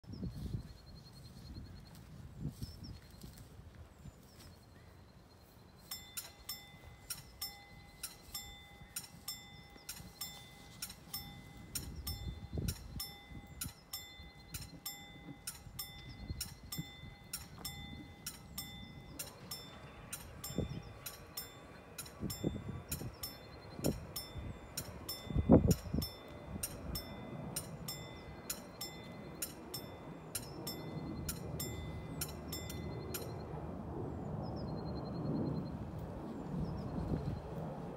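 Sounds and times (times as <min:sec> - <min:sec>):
level crossing warning bell: 0:05.1 - 0:33.6.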